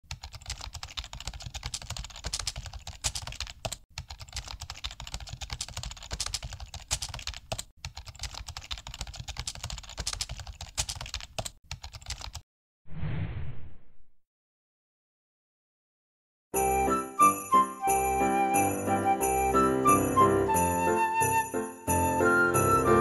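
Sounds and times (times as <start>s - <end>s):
keyboard typing clicks: 0.1s - 12.4s.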